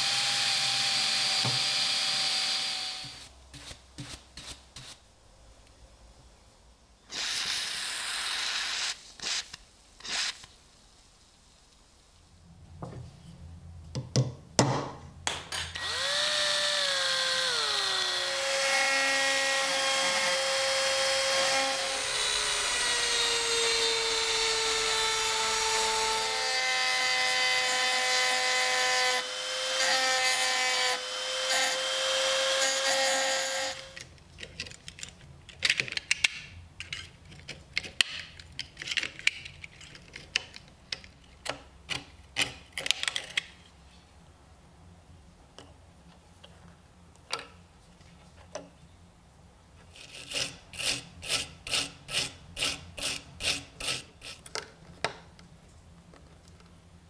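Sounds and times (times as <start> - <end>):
rotary tool whining: 0.0 - 3.3, 15.8 - 34.0.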